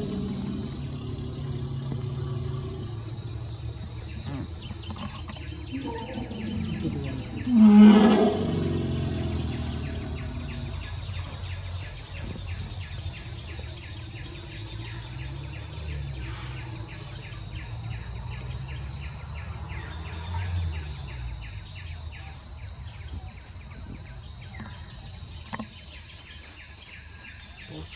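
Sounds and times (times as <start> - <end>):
high insect drone: 0.0 - 11.6
bird calls: 0.0 - 27.9.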